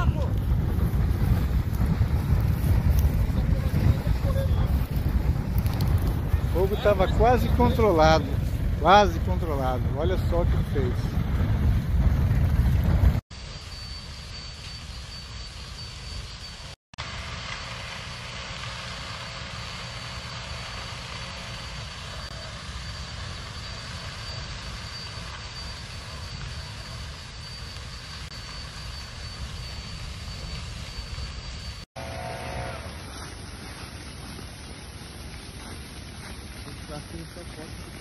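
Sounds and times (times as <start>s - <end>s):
wind buffeting microphone: 0.0s - 13.2s
grass fire: 0.0s - 38.0s
faint high whine: 5.6s - 11.1s, 13.4s - 38.0s.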